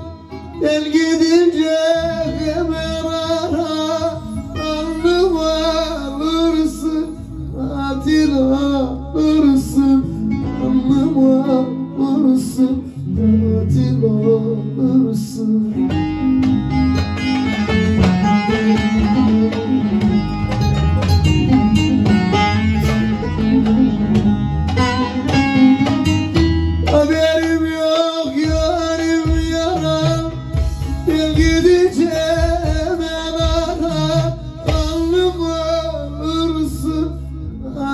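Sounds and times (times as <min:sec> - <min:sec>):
man singing into microphone: 0:00.0 - 0:16.5, 0:17.6 - 0:20.3, 0:26.8 - 0:37.9
bass line: 0:00.0 - 0:37.9
plucked long-necked lute: 0:00.0 - 0:37.9.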